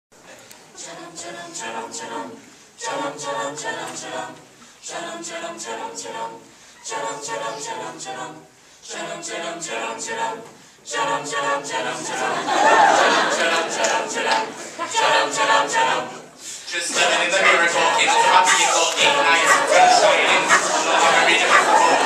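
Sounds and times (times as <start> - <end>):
a cappella group singing: 0.7 - 22.0
singers breathing: 4.5 - 4.8, 6.4 - 6.8, 8.5 - 8.8, 10.6 - 10.8, 16.3 - 16.8.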